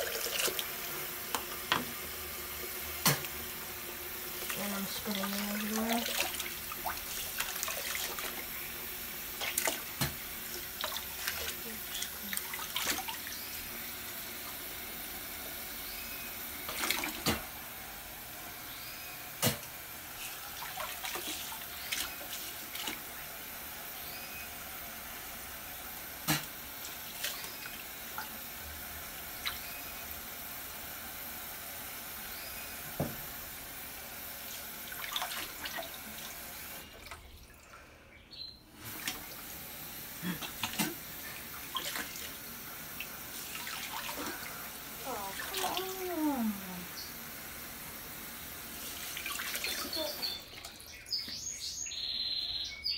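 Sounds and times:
faucet running into sink: 0:00.0 - 0:15.8
water splashes: 0:04.4 - 0:08.6, 0:09.3 - 0:13.5, 0:20.4 - 0:23.1, 0:34.8 - 0:37.8, 0:40.2 - 0:42.4, 0:43.0 - 0:46.9, 0:48.8 - 0:50.9.

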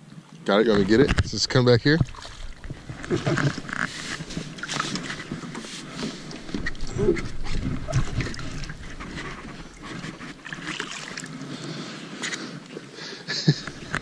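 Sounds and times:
fish thrashing and splashing: 0:01.9 - 0:12.5.

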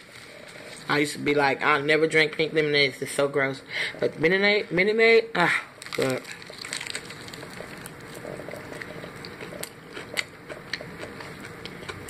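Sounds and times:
crackles from breading: 0:05.8 - 0:09.8
biting and chewing crispy chicken: 0:05.8 - 0:12.0.

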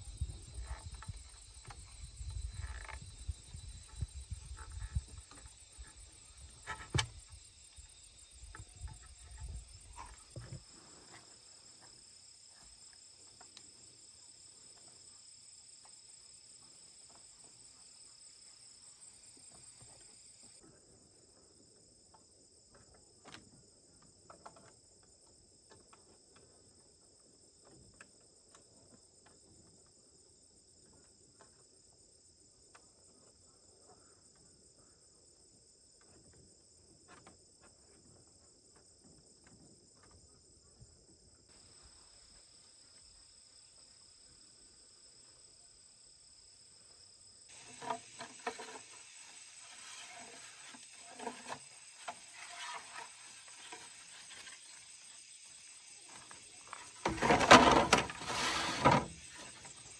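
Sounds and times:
insects chirring: 0:00.0 - 0:59.9.

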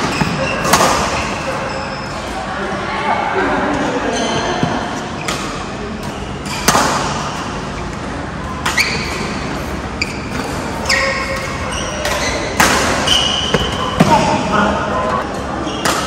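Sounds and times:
sneakers squeaking on court: 0:00.0 - 0:02.3, 0:04.1 - 0:08.0, 0:08.6 - 0:14.6
racket striking shuttlecock: 0:05.3 - 0:07.4.

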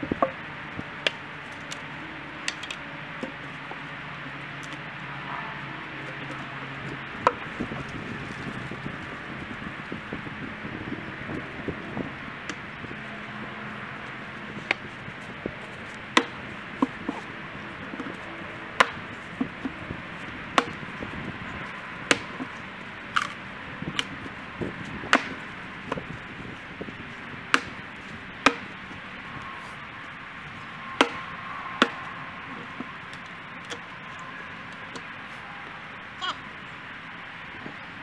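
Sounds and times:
axe splitting firewood cracks: 0:01.0 - 0:01.8, 0:02.4 - 0:03.4, 0:12.4 - 0:12.7, 0:15.9 - 0:18.2, 0:18.8 - 0:19.8, 0:20.5 - 0:20.9, 0:22.0 - 0:24.2, 0:24.8 - 0:26.1, 0:27.5 - 0:28.8, 0:31.0 - 0:33.9.

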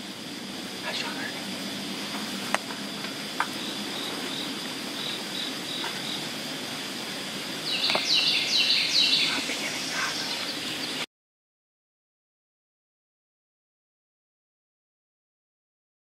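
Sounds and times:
insects chorus: 0:00.0 - 0:11.1
songbird whistling falling notes: 0:07.7 - 0:09.4.

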